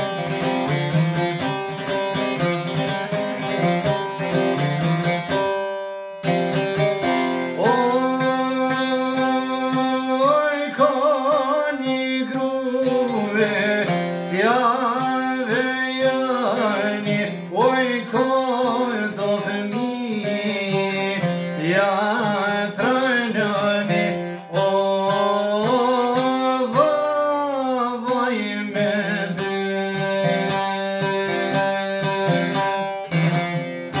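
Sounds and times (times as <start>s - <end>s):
strummed long-necked lute: 0.0s - 34.0s
man singing: 7.5s - 32.7s.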